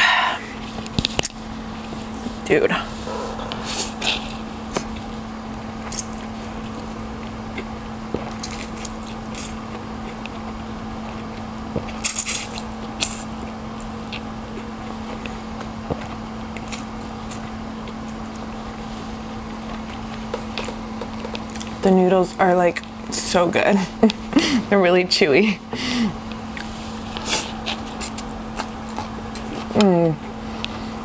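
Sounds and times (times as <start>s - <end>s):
low hum: 0.0s - 31.0s
wet chewing clicks: 3.2s - 18.6s, 19.4s - 21.8s, 26.3s - 29.9s.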